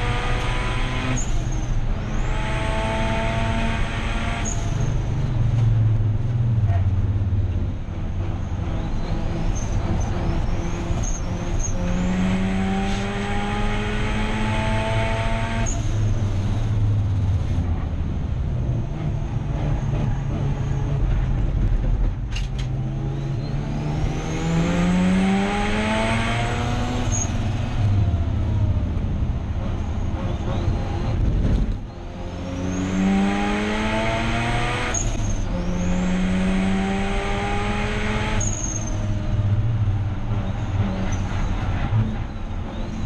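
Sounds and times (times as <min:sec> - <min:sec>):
race car engine revving: 0:00.0 - 0:04.9, 0:08.5 - 0:17.6, 0:22.7 - 0:43.0.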